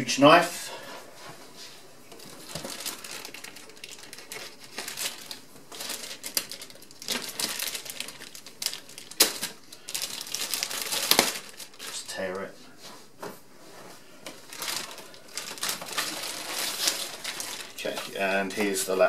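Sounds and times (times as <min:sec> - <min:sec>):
plastic bag crinkling: 0:02.1 - 0:12.4, 0:14.3 - 0:18.8.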